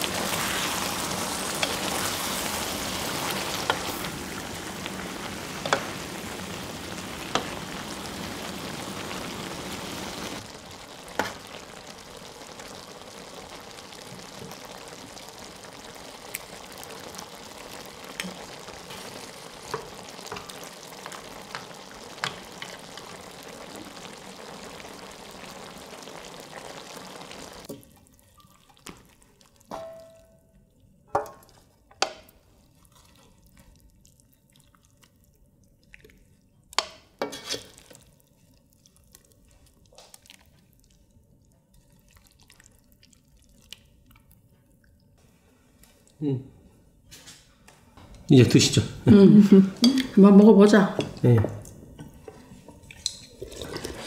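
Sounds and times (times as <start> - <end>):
stew sizzling: 0.0 - 54.0
tableware clinking: 29.7 - 30.4.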